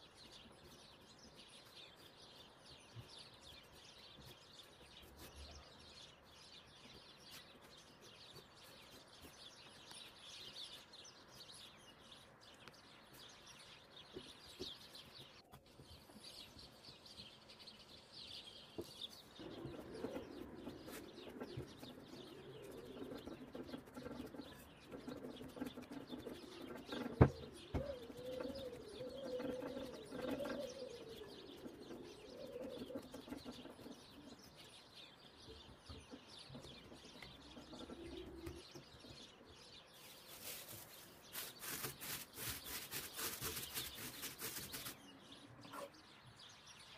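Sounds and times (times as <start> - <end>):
birds chirping: 0.0 - 46.9
dove cooing: 19.4 - 34.3, 37.5 - 38.7.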